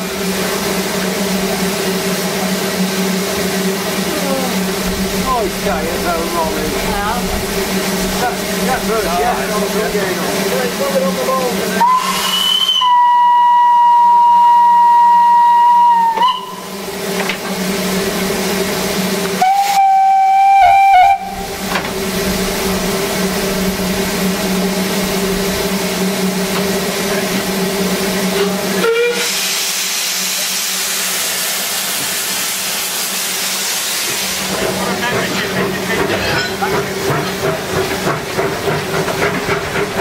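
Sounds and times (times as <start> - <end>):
steam hissing: 0.0 - 40.0
steam locomotive whistle blasts: 11.8 - 16.9, 19.3 - 21.6, 28.4 - 30.3.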